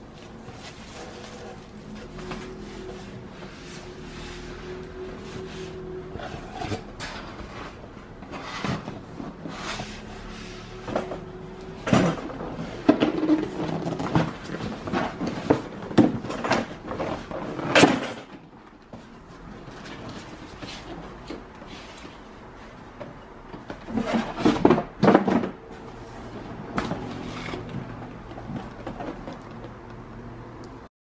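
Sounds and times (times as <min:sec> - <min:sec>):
cardboard flaps scraping and rustling: 0:00.0 - 0:23.0
box knocks and scrapes: 0:06.2 - 0:18.4, 0:23.6 - 0:29.4.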